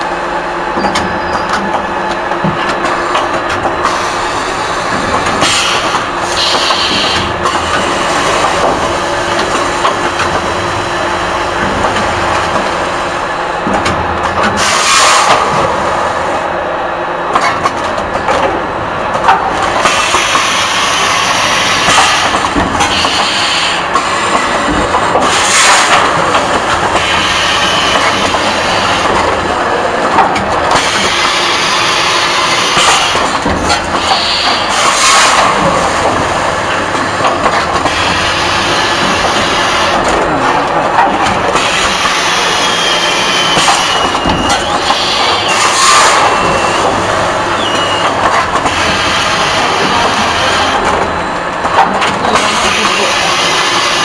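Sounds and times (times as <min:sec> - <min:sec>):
pneumatic air hissing: 0:05.4 - 0:08.4, 0:14.6 - 0:15.5, 0:19.8 - 0:24.3, 0:41.6 - 0:46.9
packing machine clatter: 0:19.2 - 0:54.0.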